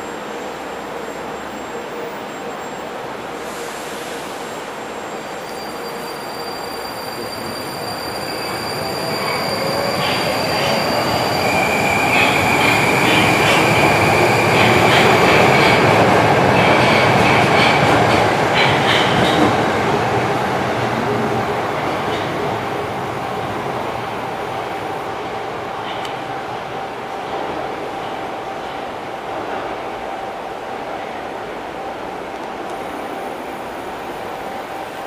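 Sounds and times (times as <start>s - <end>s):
high wheel squeal: 3.5s - 15.6s.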